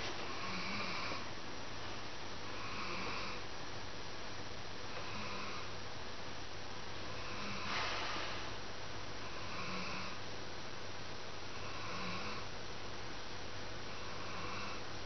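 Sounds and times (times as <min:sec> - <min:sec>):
dog breathing with soft snores: 0:07.0 - 0:08.6.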